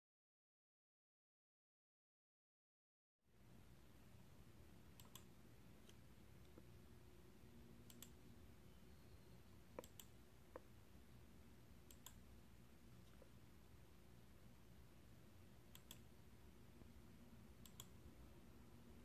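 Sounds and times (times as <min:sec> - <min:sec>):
faint clicks: 0:04.9 - 0:06.7, 0:07.8 - 0:08.2, 0:09.7 - 0:10.7, 0:11.8 - 0:12.2, 0:15.7 - 0:16.1, 0:17.6 - 0:18.0.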